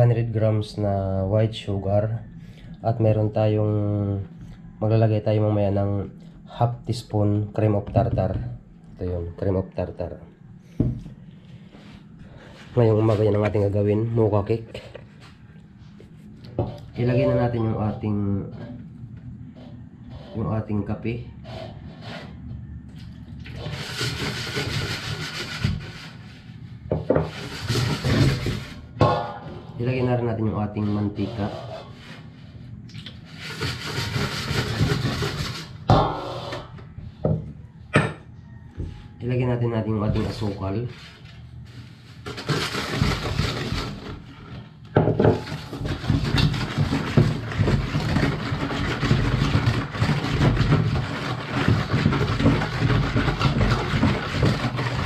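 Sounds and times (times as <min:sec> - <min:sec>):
whisk swishing and scraping bowl: 0:19.5 - 0:20.8, 0:23.5 - 0:36.9, 0:40.1 - 0:44.8, 0:45.4 - 0:55.0.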